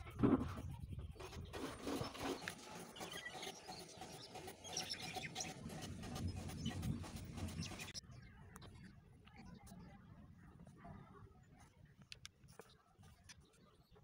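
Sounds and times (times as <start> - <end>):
pencil scratching on paper: 0.0 - 8.0.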